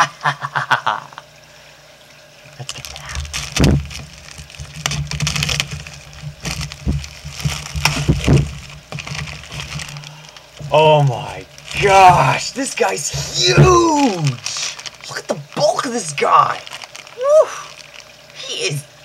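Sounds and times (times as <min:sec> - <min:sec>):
plastic bag crinkling: 0:02.7 - 0:18.7
dull knocks against cardboard box: 0:04.6 - 0:09.9.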